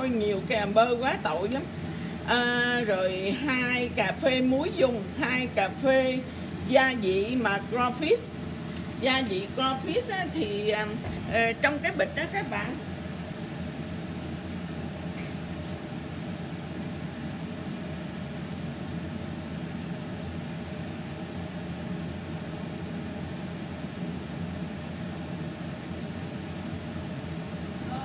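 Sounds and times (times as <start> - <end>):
stove burner rushing hum: 0.0 - 28.0.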